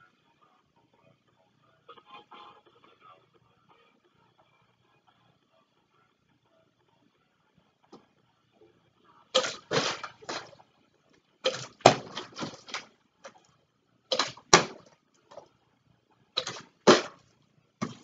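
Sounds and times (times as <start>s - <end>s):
plastic bottle landing and clattering: 9.4s - 10.6s, 11.5s - 13.4s, 14.1s - 15.4s, 16.4s - 17.2s.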